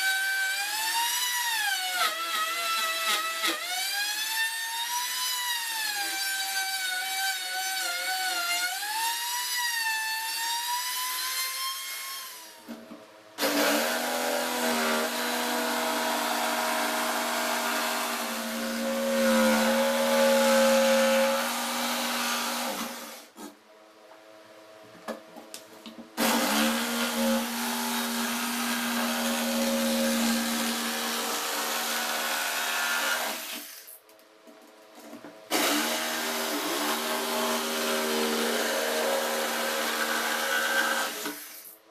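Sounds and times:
jigsaw sawing plywood: 13.4s - 23.6s, 26.2s - 33.8s, 35.5s - 41.6s
router whining cutting plywood: 35.5s - 41.6s.

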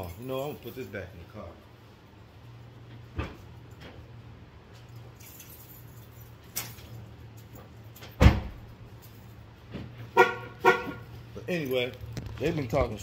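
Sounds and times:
car door shutting: 8.2s - 8.6s.

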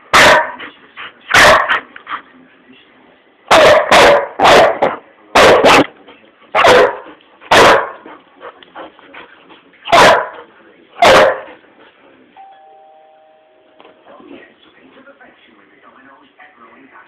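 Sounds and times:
dog barking: 0.1s - 0.6s, 1.3s - 1.8s, 3.5s - 8.1s, 9.9s - 11.6s.

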